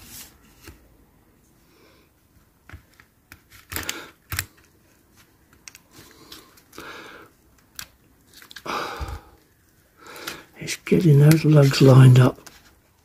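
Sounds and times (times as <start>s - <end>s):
plastic parts clicking and scraping: 2.7s - 6.8s, 7.5s - 8.7s.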